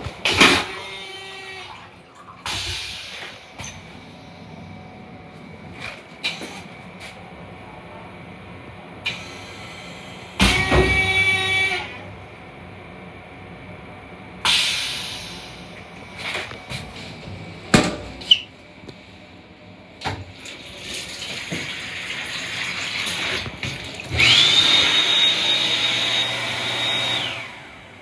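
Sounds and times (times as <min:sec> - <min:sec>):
water running at sink: 0:20.3 - 0:27.1
motor rushing and whining: 0:24.1 - 0:27.8.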